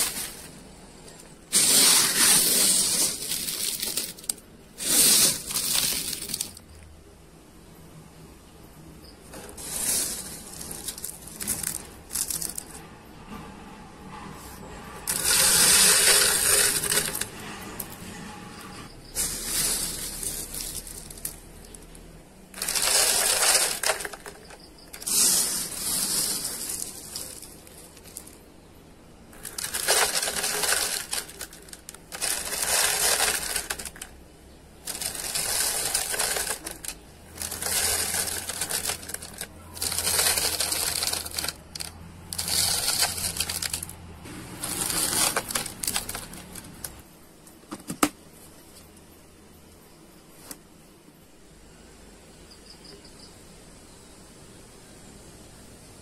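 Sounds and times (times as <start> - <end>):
rice pouring into plastic container: 1.5 - 6.6, 9.4 - 12.7, 15.1 - 17.9, 19.1 - 21.9, 22.5 - 28.4, 29.3 - 34.2, 34.8 - 46.9.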